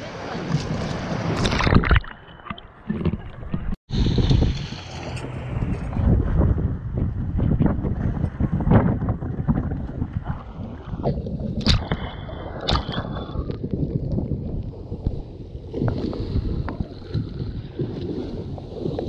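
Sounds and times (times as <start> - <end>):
water rushing and splashing: 0.0 - 19.0
wind buffeting microphone: 2.9 - 19.0.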